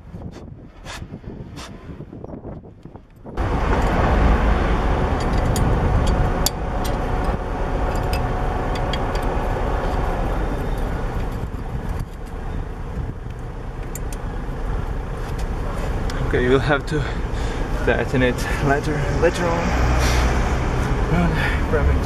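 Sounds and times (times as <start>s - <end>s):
steady low rumble: 0.0s - 22.0s
light clicks of brake disc: 5.2s - 10.1s, 13.2s - 14.3s, 15.2s - 16.2s.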